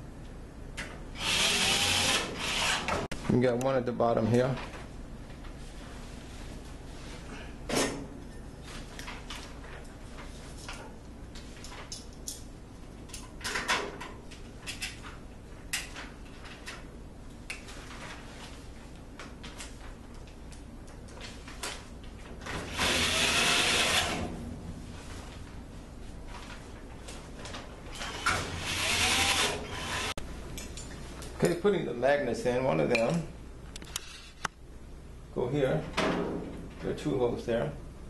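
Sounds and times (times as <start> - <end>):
cordless drill driving screw: 1.2 - 3.0, 22.7 - 24.2, 27.9 - 30.1.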